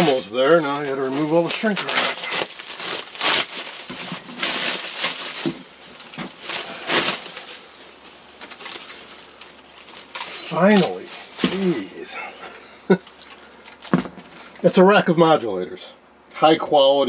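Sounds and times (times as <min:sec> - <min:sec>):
plastic shrink wrap tearing: 0:00.0 - 0:12.0.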